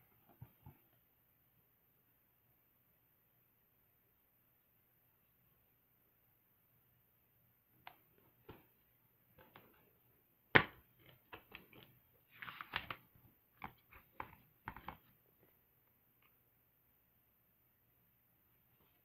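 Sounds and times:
paper booklet rustling: 11.1 - 15.1.

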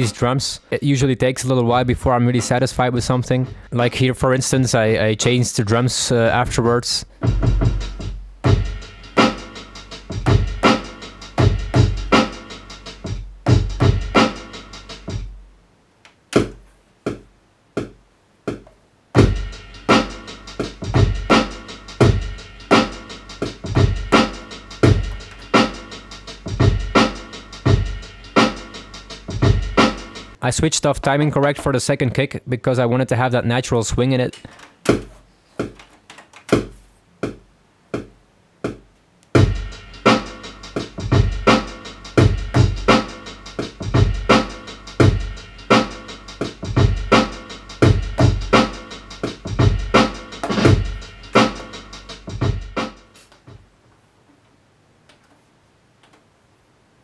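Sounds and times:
boom-bap drum pattern: 1.8 - 5.0, 6.3 - 15.5, 16.3 - 30.4, 34.8 - 35.8, 36.5 - 53.7
dense beat with deep bass: 2.2 - 3.9, 6.4 - 15.5, 19.2 - 30.4, 39.4 - 53.1
deep bass: 7.2 - 9.2, 43.8 - 45.8.

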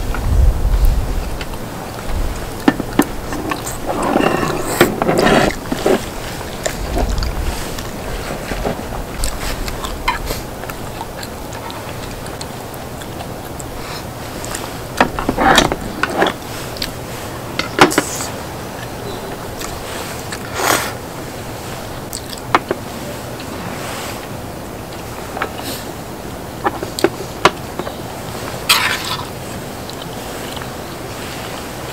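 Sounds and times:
steady background hiss: 0.0 - 31.9
person chewing: 3.0 - 14.7.

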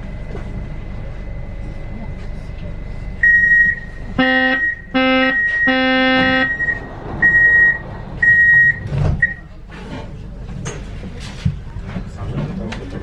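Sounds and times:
high beeps: 3.2 - 9.4
loud low door buzzer: 4.1 - 7.2
sliding doors thumping shut: 8.7 - 9.3.

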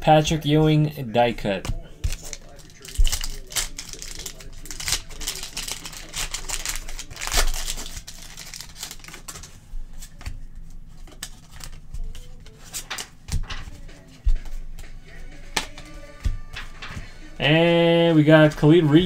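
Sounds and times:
foil wrapper crinkling: 2.1 - 10.2.

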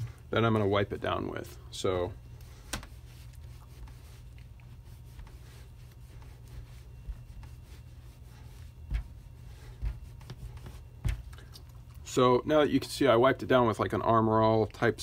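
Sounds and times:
steady low hum: 0.0 - 15.0
cloth rubbing rubber gasket: 2.6 - 11.2.

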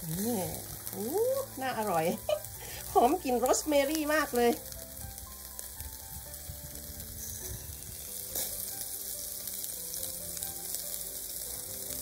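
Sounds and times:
ribs sizzling on a grill: 0.0 - 12.0.

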